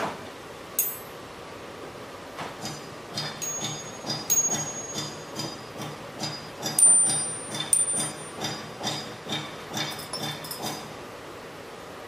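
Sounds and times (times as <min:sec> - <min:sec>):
metallic clink of brass tools: 0:00.8 - 0:01.2, 0:02.7 - 0:05.6, 0:09.8 - 0:10.8.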